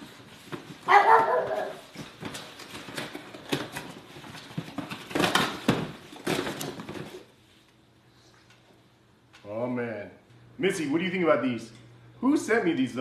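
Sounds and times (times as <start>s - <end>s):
dog barking: 0.9s - 1.9s.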